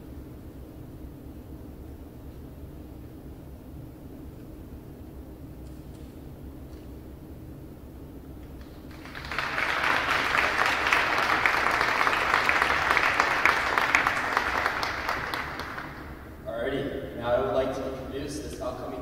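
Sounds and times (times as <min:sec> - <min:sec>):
audience applauding: 0:08.6 - 0:16.3.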